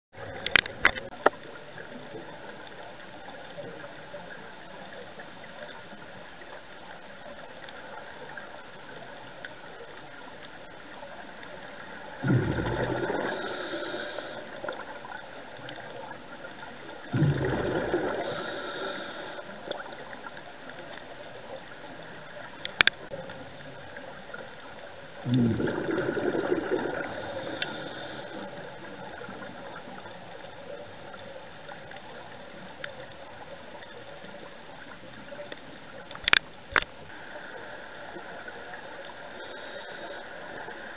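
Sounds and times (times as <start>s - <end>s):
steady underwater hiss: 0.2s - 40.9s
gurgling bursts of bubbles: 12.1s - 15.1s, 17.0s - 19.4s, 25.2s - 29.7s.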